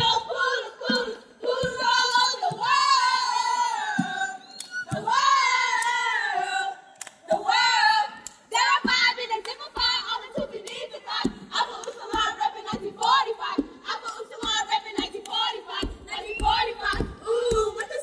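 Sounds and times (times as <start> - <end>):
women chanting in unison: 0.0 - 18.0
low thumps: 8.7 - 18.0.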